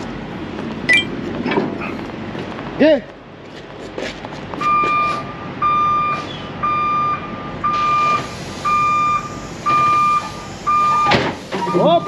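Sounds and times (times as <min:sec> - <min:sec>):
low vehicle noise: 0:00.0 - 0:12.0
truck backup alarm beeping: 0:04.6 - 0:12.0.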